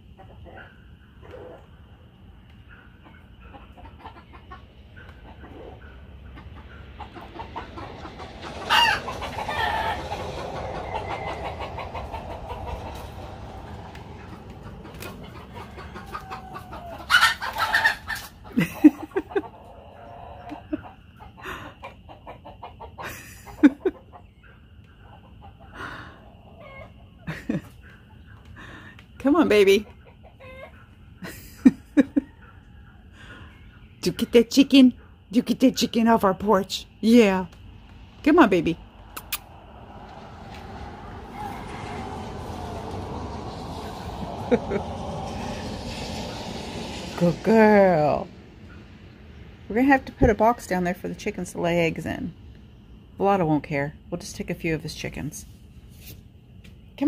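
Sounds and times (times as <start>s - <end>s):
chickens clucking: 0.0s - 34.2s
chicken squawk: 2.7s - 24.3s, 25.0s - 27.1s, 29.9s - 30.9s.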